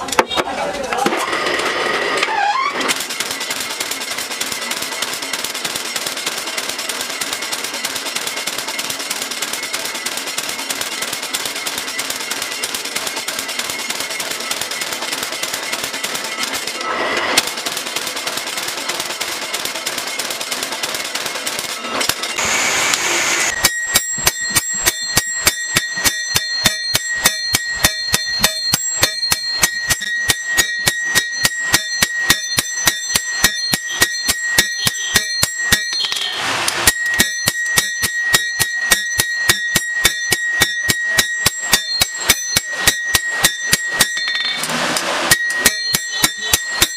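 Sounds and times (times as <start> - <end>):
power hammer pounding steel: 1.0 - 46.9
hand hammer ringing on anvil: 23.5 - 44.7, 45.3 - 46.9.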